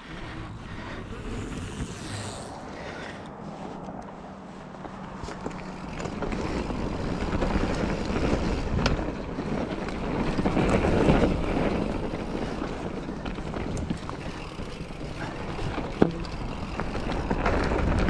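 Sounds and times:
bike tyre roar: 0.0 - 18.0
wind rushing over microphone: 0.0 - 18.0
bike clicks and knocks: 4.8 - 18.0.

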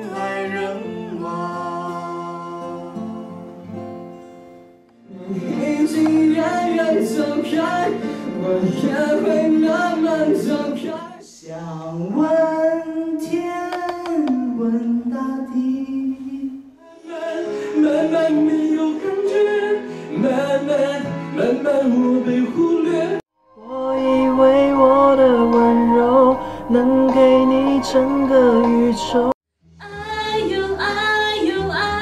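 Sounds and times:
men singing into a microphone: 5.1 - 12.6, 17.0 - 29.4.

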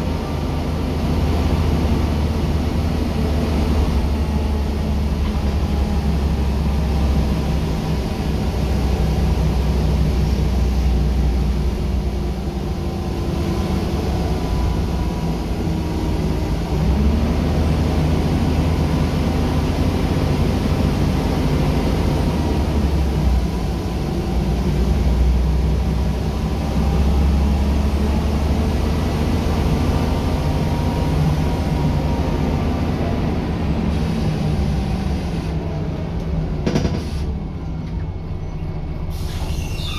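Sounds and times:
bus diesel engine running: 0.0 - 39.9
road and body rumble: 0.0 - 39.9.

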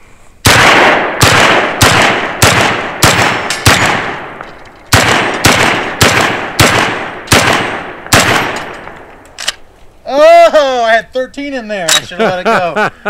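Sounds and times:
shotgun shots with echo: 0.4 - 9.0.

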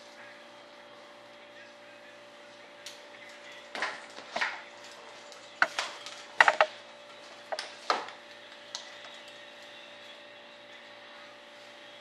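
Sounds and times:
sharp knocks and clacks: 5.6 - 6.7.

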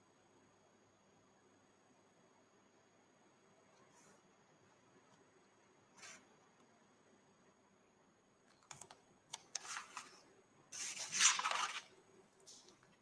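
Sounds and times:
sharp clicks: 8.5 - 9.7
scraping rustling noise: 9.6 - 11.9.

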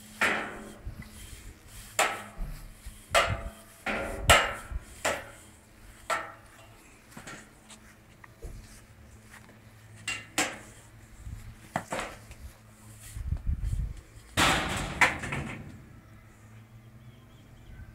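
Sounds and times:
broom and dustpan clattering: 0.0 - 7.6.

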